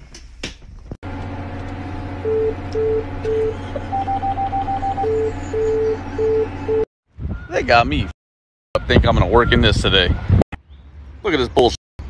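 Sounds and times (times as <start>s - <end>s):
engine-like hum: 0.1s - 6.9s
low pulsing beep: 2.2s - 6.9s.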